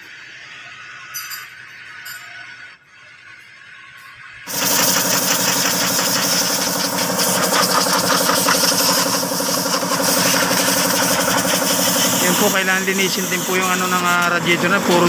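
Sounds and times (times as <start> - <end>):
air compressor pulsing hum: 4.4 - 15.0
compressed air hissing from hose: 4.5 - 15.0.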